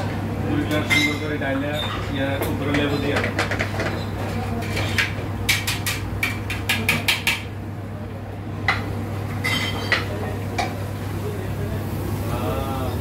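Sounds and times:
cutlery clinking against plates: 0.6s - 7.5s, 8.7s - 10.8s.

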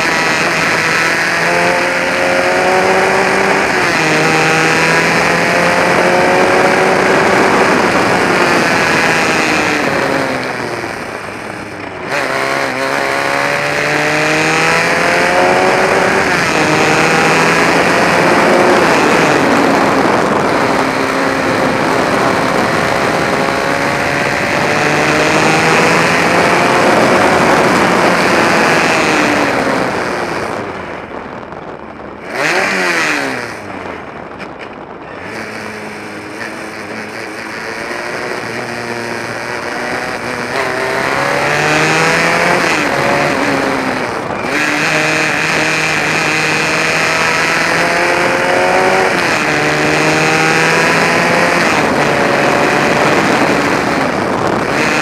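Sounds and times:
race car engine revving: 0.0s - 55.0s.

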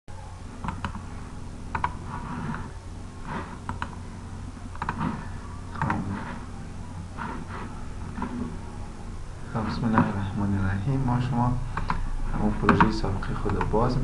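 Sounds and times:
low electrical hum: 0.1s - 14.0s
computer mouse clicks: 0.6s - 1.0s, 1.7s - 2.0s, 3.6s - 4.0s, 4.7s - 5.2s, 5.8s - 6.0s, 11.8s - 12.0s, 12.6s - 13.8s.

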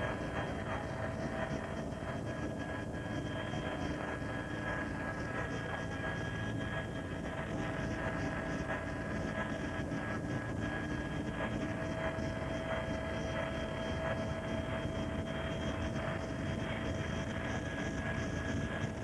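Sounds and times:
helicopter engine and rotor drone: 0.0s - 19.0s
steady high whine: 0.0s - 19.0s.

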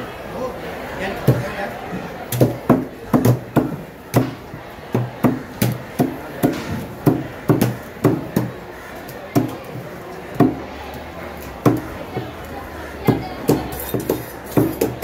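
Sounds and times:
cleaver chopping on wooden block: 2.3s - 4.4s, 5.0s - 8.5s, 13.1s - 15.0s.

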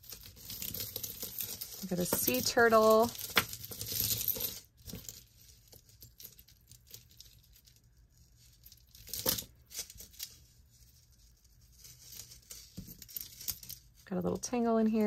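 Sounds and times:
metal chain clinking: 0.0s - 7.8s.

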